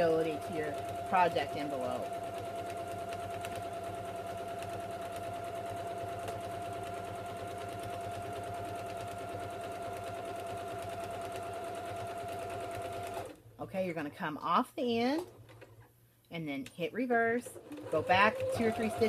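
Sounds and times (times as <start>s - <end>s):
sewing machine running: 0.0s - 13.4s, 17.5s - 19.0s.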